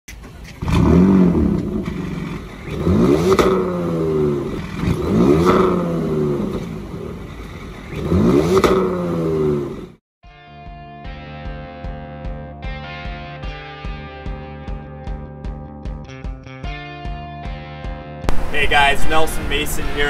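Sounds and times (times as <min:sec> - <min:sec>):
car engine revving: 0:00.5 - 0:10.0
music: 0:10.2 - 0:18.3.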